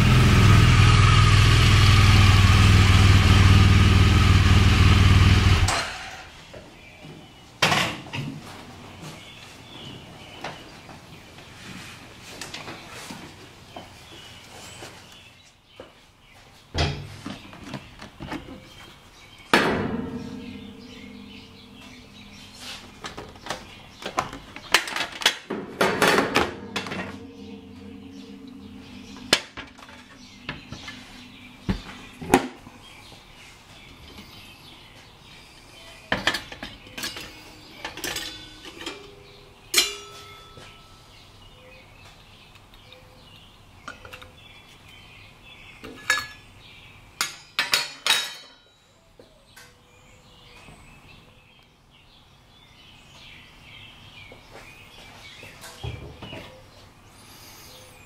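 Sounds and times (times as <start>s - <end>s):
metal clinking on metal: 36.9s - 41.0s.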